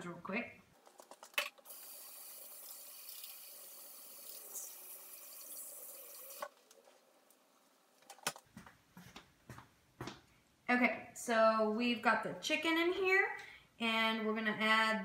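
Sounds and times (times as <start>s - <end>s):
faucet water running: 1.7s - 6.5s.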